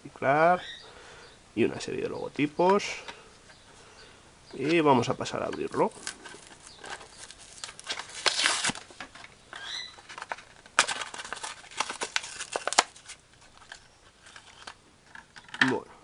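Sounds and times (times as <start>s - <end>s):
blister pack tearing: 5.8s - 9.0s, 9.6s - 14.8s
plastic squeak: 9.5s - 10.6s.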